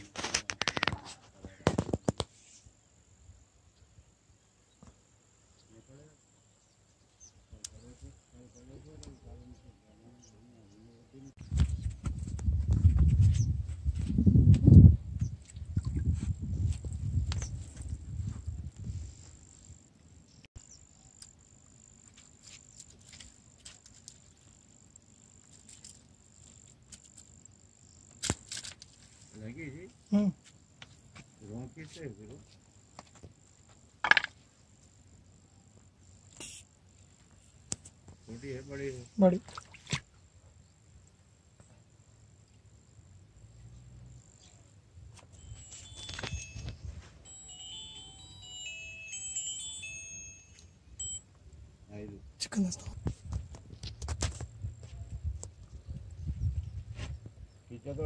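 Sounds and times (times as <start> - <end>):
high-pitched insect drone: 45.3 - 51.3.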